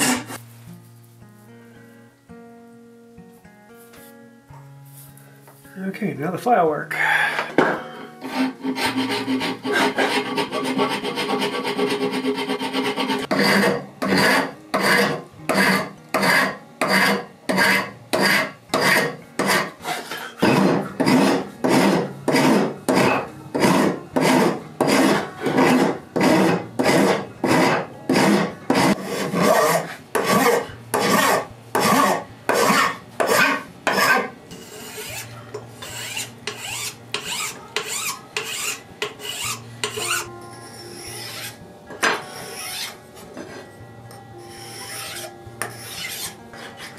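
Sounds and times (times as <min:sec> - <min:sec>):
hand file rasping on metal: 0:08.2 - 0:41.6, 0:42.2 - 0:43.7, 0:44.4 - 0:46.9.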